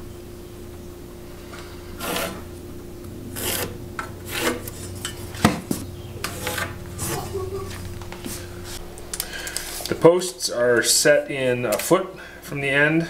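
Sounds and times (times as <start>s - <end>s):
pencil scratching on timber: 2.0s - 2.4s, 3.4s - 4.8s.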